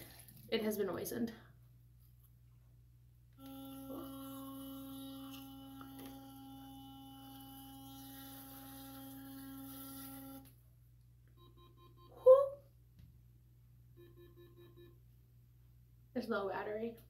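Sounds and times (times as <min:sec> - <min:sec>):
electric toothbrush humming: 0:03.4 - 0:10.6.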